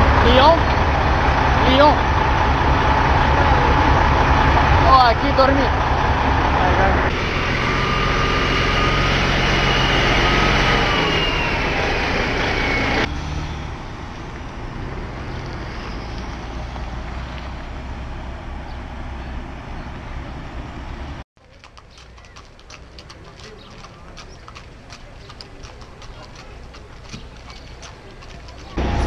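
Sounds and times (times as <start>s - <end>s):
high whine: 0.0s - 15.0s
diesel truck engines humming: 0.0s - 29.0s
traffic rumble: 0.0s - 29.0s.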